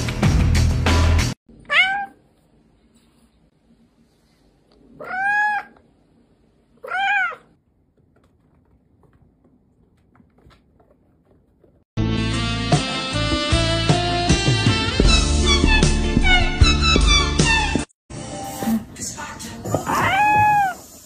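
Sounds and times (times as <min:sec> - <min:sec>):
music: 0:00.0 - 0:01.4, 0:12.0 - 0:19.5
cat meowing: 0:01.6 - 0:02.2, 0:05.0 - 0:05.8, 0:06.8 - 0:07.5, 0:19.8 - 0:20.9.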